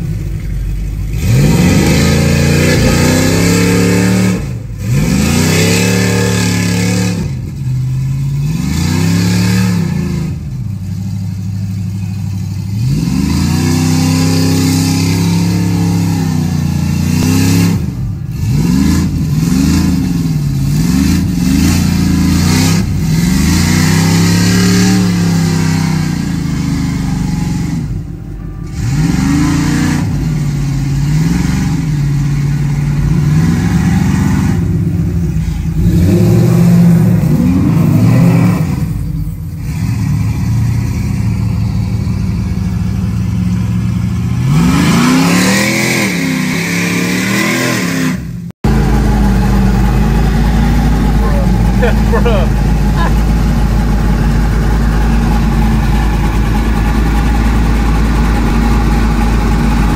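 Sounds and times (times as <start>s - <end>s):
suv engine revving hard: 1.1s - 7.6s, 8.3s - 10.5s, 12.8s - 28.0s, 28.6s - 41.0s, 43.6s - 59.9s.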